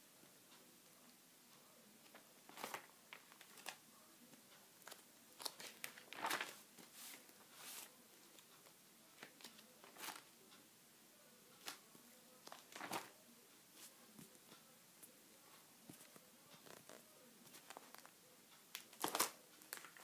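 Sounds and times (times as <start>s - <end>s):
plastic sheets crinkling: 2.0s - 3.8s, 4.8s - 7.9s, 9.2s - 10.3s, 12.4s - 13.2s, 18.7s - 20.0s.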